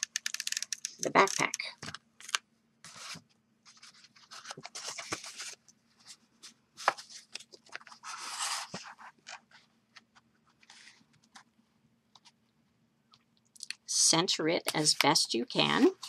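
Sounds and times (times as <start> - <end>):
paper rustling and scraping: 2.8 - 9.7, 10.5 - 11.4.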